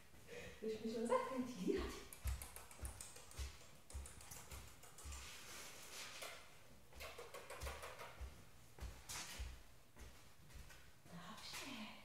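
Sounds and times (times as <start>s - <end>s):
footsteps on laminate floor: 8.1s - 11.8s
shoe scuffs: 8.2s - 10.8s.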